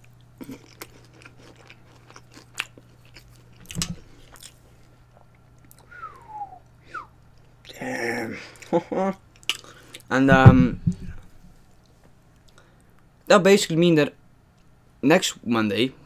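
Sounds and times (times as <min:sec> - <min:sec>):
chewing with soft crunches: 0:00.0 - 0:05.9, 0:06.6 - 0:07.7
glass dish knocking on wood: 0:10.3 - 0:11.2.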